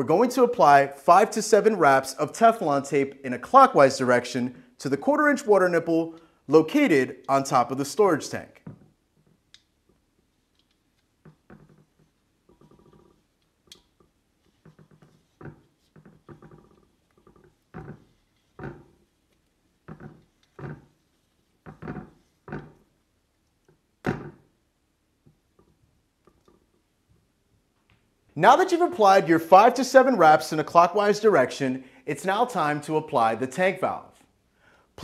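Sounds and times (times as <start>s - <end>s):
tape rubbing and squeaking: 9.0s - 23.0s.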